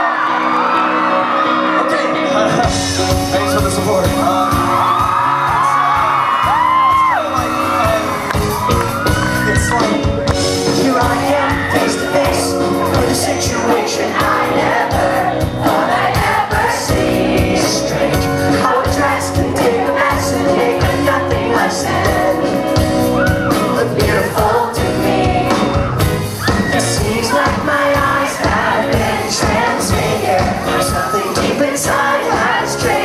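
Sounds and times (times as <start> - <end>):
audience screaming and whooping: 0.0 - 33.0
live musical accompaniment: 0.0 - 33.0
man singing into a microphone: 9.4 - 14.2, 26.8 - 28.5.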